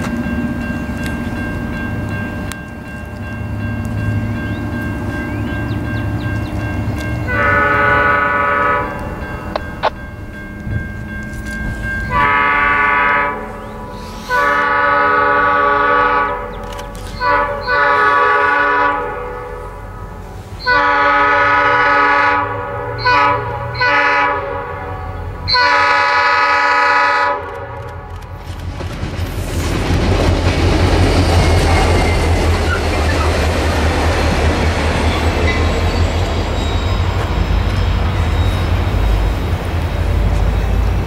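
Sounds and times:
low train rumble: 0.0 - 41.0
train horn blasts: 7.2 - 9.2, 11.3 - 28.0.

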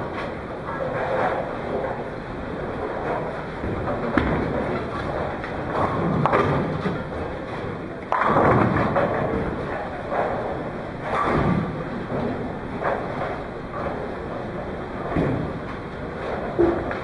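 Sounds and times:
bowling ball rolling: 0.0 - 17.0
bowling ball hitting pin: 8.1 - 9.7
bowling pins crashing: 8.1 - 14.2.

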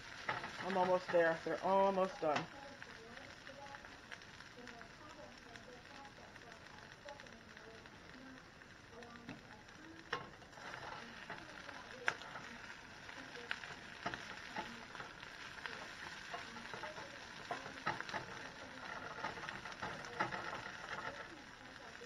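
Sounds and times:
food sizzling in a skillet: 0.0 - 22.0
spatula scraping and tapping pan: 0.1 - 2.5, 9.2 - 21.4.

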